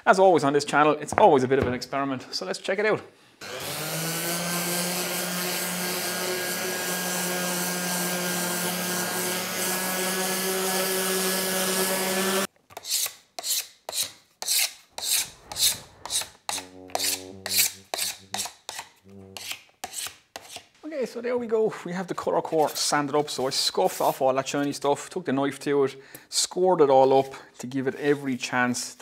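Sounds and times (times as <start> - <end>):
electric palm sander running: 3.4 - 12.5
knife scraping laminate: 12.7 - 20.7.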